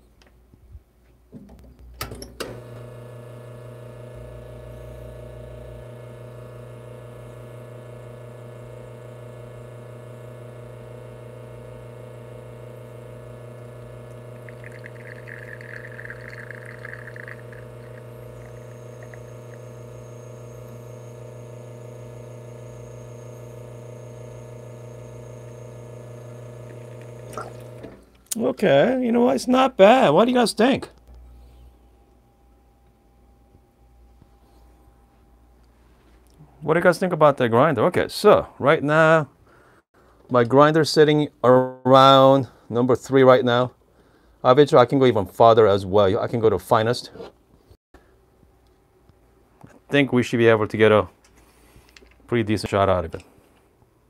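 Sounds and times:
espresso machine pump humming: 0:02.5 - 0:28.0
soft trickle of espresso: 0:13.0 - 0:21.2, 0:26.2 - 0:27.8.

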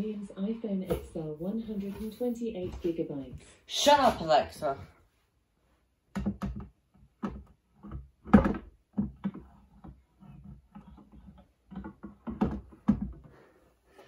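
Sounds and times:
plastic monitor knocks and clicks: 0:06.1 - 0:10.0, 0:11.7 - 0:13.3.

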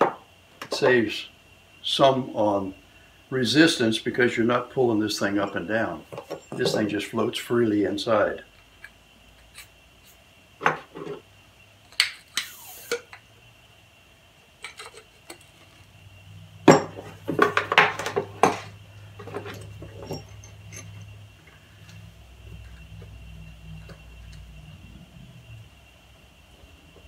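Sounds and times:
steel parts clinking and knocking: 0:05.4 - 0:06.9, 0:14.6 - 0:15.9, 0:16.6 - 0:21.1.

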